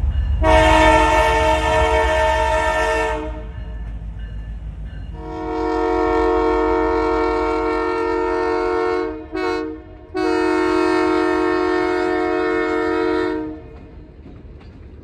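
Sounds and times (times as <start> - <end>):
steady low rumble: 0.0 - 5.2
locomotive air horn blasts: 0.4 - 3.8, 5.2 - 13.8.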